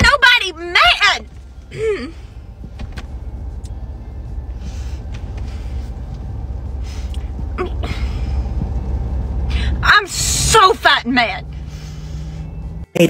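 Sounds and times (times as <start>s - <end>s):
woman speaking upset: 0.0s - 1.3s, 9.8s - 11.5s
low car interior rumble: 0.0s - 13.0s.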